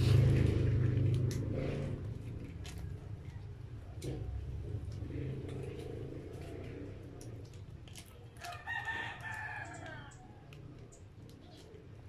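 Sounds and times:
rooster crowing: 0:08.4 - 0:10.5.

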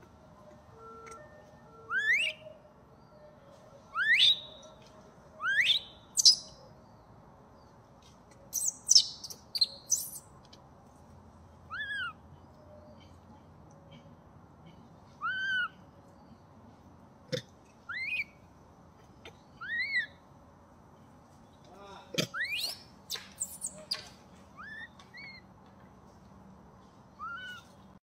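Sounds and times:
macaque calls and screeches: 0:08.6 - 0:10.2, 0:11.7 - 0:12.2, 0:15.2 - 0:15.7, 0:17.9 - 0:18.2, 0:19.6 - 0:20.1, 0:22.2 - 0:25.4, 0:27.2 - 0:27.7.

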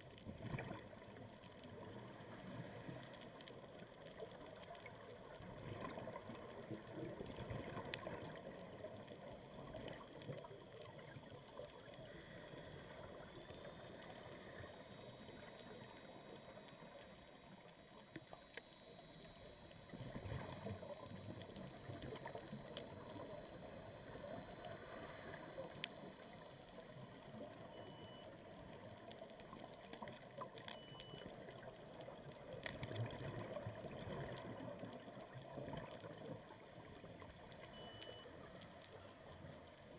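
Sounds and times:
exhaled bubbles bubbling: 0:00.0 - 0:01.8, 0:32.6 - 0:36.6
muffled underwater noise: 0:00.0 - 0:39.9
small clicks: 0:00.1 - 0:39.9.

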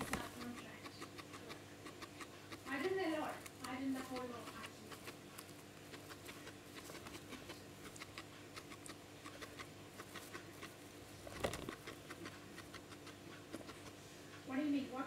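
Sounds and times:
guinea pig crunching hay: 0:00.0 - 0:15.0.

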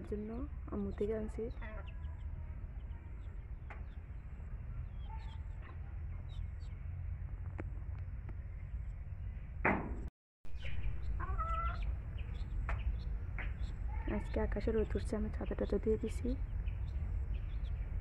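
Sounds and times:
wind rumble on microphone: 0:00.0 - 0:18.0
chicks peeping: 0:00.3 - 0:06.8, 0:10.6 - 0:18.0
sharp knock: 0:09.6 - 0:10.1.

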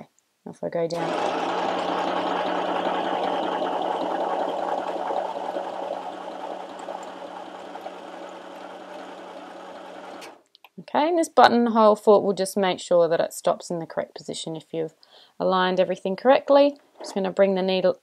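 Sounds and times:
sewing machine running: 0:00.9 - 0:10.4.

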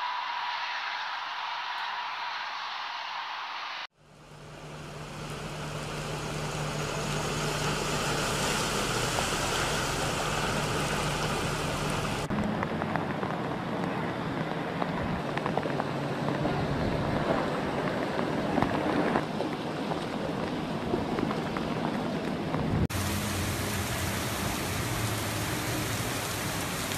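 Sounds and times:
heavy rain hissing: 0:00.0 - 0:12.3, 0:22.9 - 0:26.9
vehicle engine humming: 0:00.0 - 0:26.9
rain pattering and dripping: 0:04.6 - 0:26.9.

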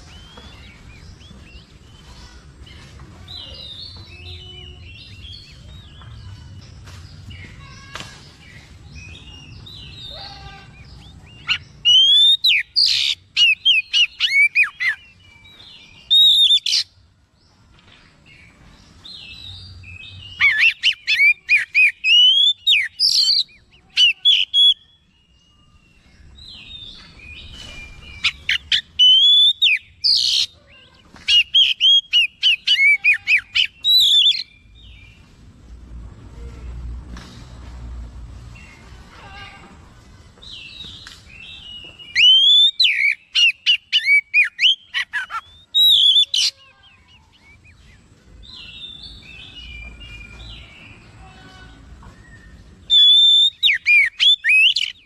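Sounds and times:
bird singing whistles: 0:11.4 - 0:15.0, 0:16.0 - 0:16.9, 0:27.4 - 0:30.5, 0:42.1 - 0:46.5, 0:52.1 - 0:55.0.

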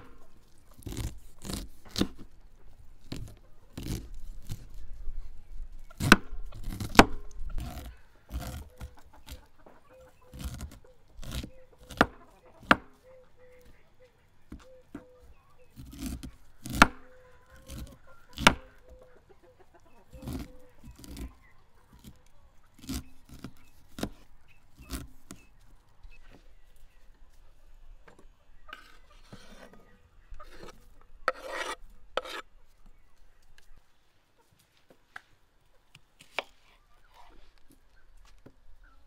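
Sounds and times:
scraping and rasping: 0:00.0 - 0:12.9, 0:15.7 - 0:18.8, 0:20.1 - 0:26.5, 0:28.7 - 0:32.8
knife chopping on wooden board: 0:10.3 - 0:12.9, 0:15.8 - 0:17.0, 0:17.7 - 0:18.7.

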